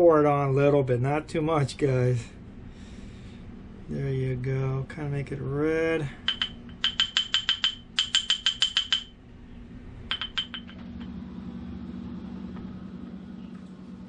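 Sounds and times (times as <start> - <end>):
low steady hum: 0.0 - 14.0
spice bottle clinking: 6.3 - 9.1, 10.1 - 10.8.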